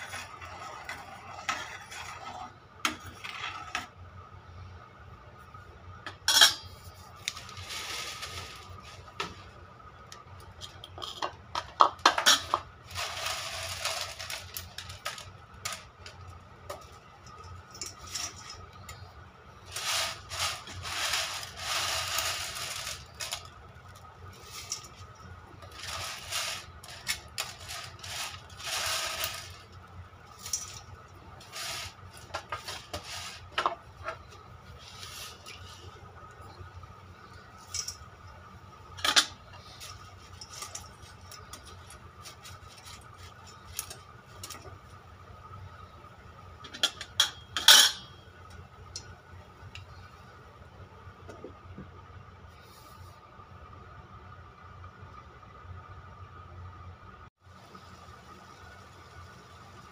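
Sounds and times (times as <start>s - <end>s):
noodles rustling and scraping: 6.7s - 9.7s, 12.2s - 38.1s, 39.0s - 44.8s
utensils clicking on pot: 25.6s - 29.7s.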